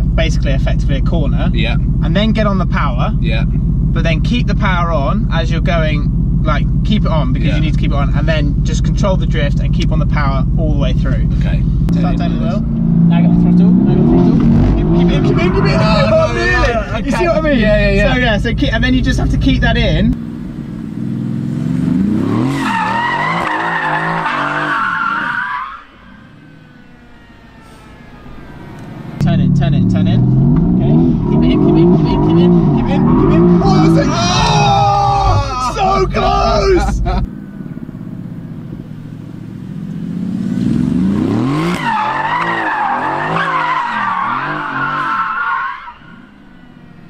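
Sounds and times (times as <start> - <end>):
car engine revving: 0.0 - 47.0
tyres squealing: 12.9 - 18.2, 22.0 - 29.6, 30.4 - 40.3, 41.0 - 47.0.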